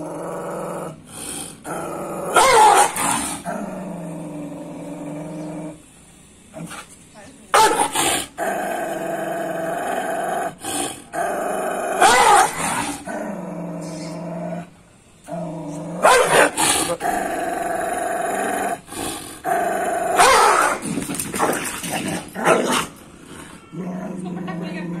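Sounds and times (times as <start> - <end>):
dog growling: 0.0 - 5.9, 7.7 - 25.0
dog barking: 2.4 - 3.1, 7.6 - 8.0, 12.0 - 12.6, 16.0 - 16.6, 20.2 - 20.8.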